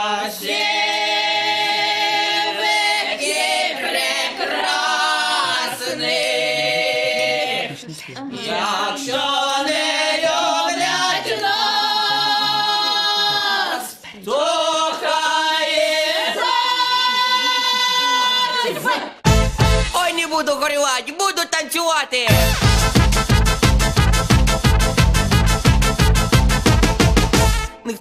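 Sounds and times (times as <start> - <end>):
voices singing long notes: 0.0 - 19.0
instrumental backing: 19.2 - 20.0, 22.3 - 27.9.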